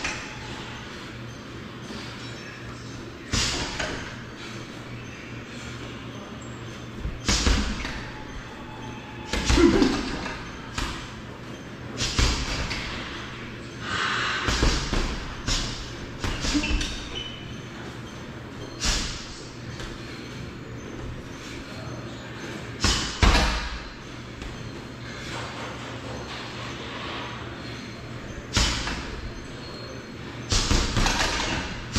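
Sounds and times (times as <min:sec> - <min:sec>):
punches and kicks on heavy bag: 0:12.0 - 0:12.8, 0:14.5 - 0:17.1.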